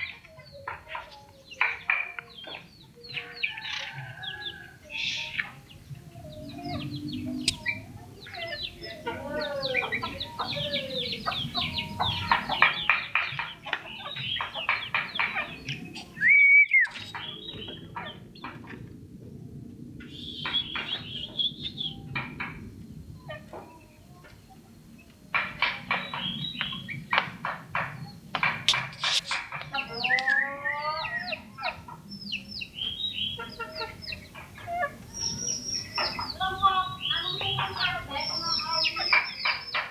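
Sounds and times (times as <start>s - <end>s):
bird chattering song: 0.0s - 18.8s, 20.0s - 39.9s
bird singing whistled notes: 16.2s - 17.8s, 35.1s - 37.4s.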